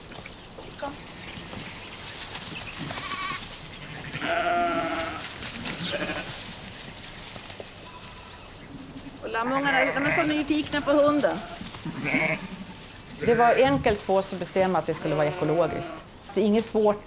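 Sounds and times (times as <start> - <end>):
rustling background: 0.0 - 17.0
sheep bleating: 2.9 - 6.3, 7.8 - 8.5, 9.2 - 14.0, 14.9 - 16.1.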